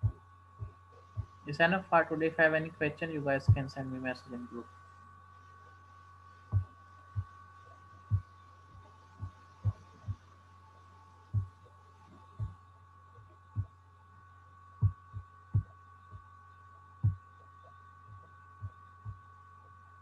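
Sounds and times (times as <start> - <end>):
electrical hum: 0.0 - 20.0
faint high whine: 0.0 - 20.0.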